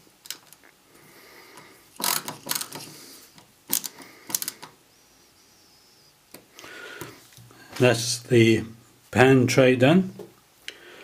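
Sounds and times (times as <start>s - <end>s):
screwdriver clicking and scraping: 2.0s - 4.7s.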